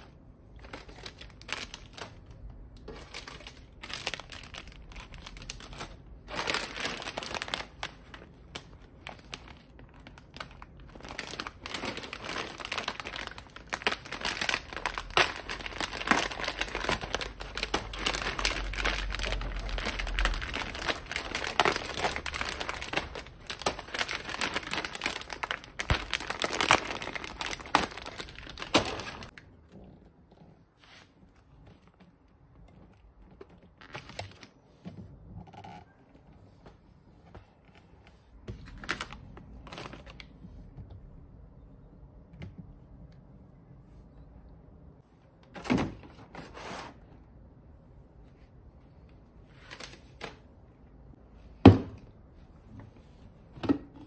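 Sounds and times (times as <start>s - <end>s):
plastic bags crinkling: 0.0s - 29.4s, 33.5s - 34.6s, 38.5s - 40.4s.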